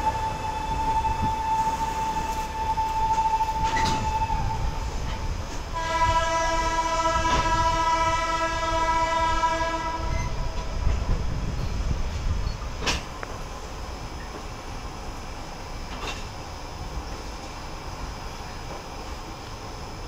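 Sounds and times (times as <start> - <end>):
train horn: 0.0 - 10.7
train rumbling along platform: 0.0 - 20.0.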